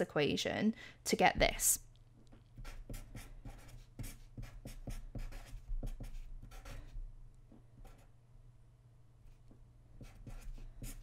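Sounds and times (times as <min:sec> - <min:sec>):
faint low hum: 0:00.7 - 0:11.0
marker writing on paper: 0:02.6 - 0:07.0, 0:07.8 - 0:08.1, 0:10.0 - 0:11.0.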